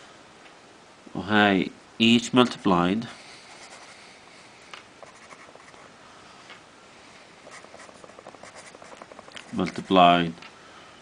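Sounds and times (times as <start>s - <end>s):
pencil scratching on paper: 3.5s - 4.0s, 5.0s - 5.8s, 7.4s - 10.0s.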